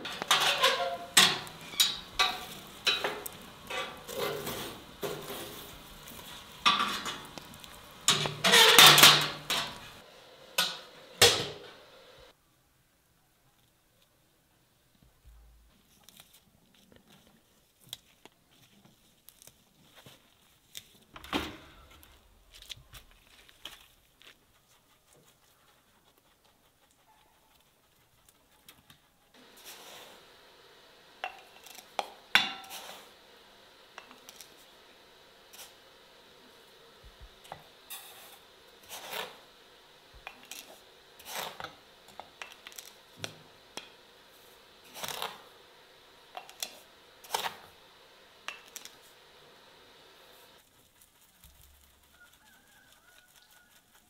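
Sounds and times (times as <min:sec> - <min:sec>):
dishes and cutlery clinking: 0:00.0 - 0:05.6, 0:08.0 - 0:10.0
faint steady hiss: 0:00.0 - 0:54.0.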